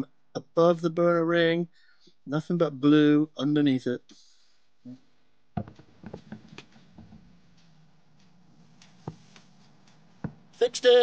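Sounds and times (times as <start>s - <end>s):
heater low hum: 5.6s - 11.0s.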